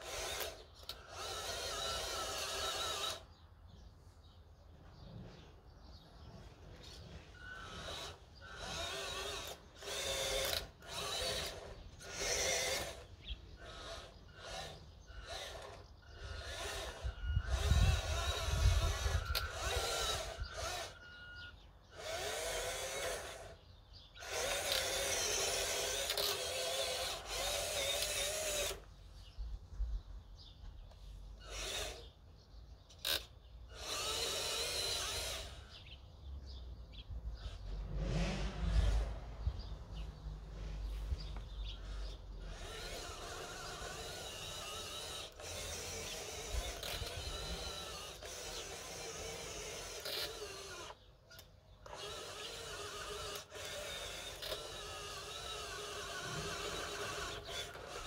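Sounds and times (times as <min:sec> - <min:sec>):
electric motor and gearbox whining: 0:00.0 - 0:03.4, 0:06.2 - 0:29.1, 0:30.6 - 0:32.2, 0:32.9 - 0:36.0, 0:37.3 - 0:58.0.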